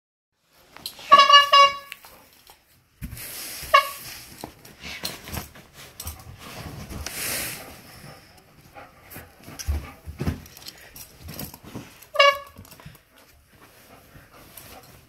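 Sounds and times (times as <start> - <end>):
rubber bulb horn honking: 1.0 - 2.0, 3.7 - 4.1, 12.1 - 12.7.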